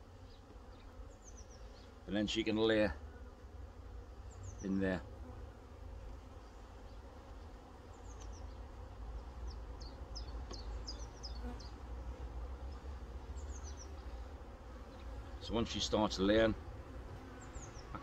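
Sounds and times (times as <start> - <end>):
honeybees buzzing: 0.0 - 18.0.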